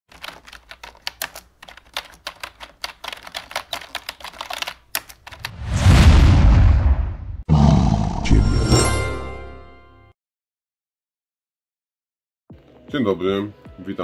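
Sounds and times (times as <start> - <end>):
rapid typing-like clicks: 0.1 - 5.5
deep noisy whoosh: 5.5 - 7.4
loud hit: 5.5 - 7.4.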